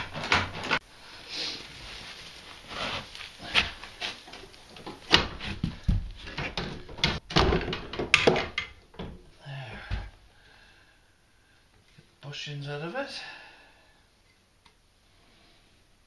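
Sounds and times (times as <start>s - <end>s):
heavy thumps: 2.6s - 10.2s
metal knocks and clunks: 4.8s - 9.3s.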